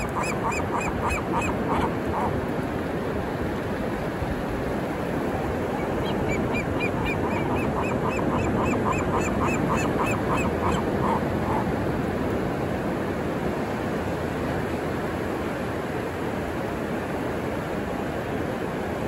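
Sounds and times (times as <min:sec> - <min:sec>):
gull squawking: 0:00.0 - 0:02.3, 0:06.0 - 0:11.7
ocean waves crashing: 0:00.0 - 0:19.0.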